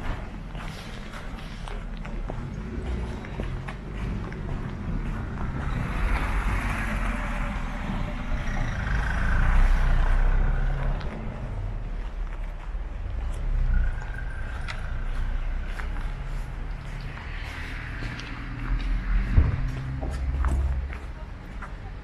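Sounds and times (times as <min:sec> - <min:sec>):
vehicle driving past: 0:02.1 - 0:12.4.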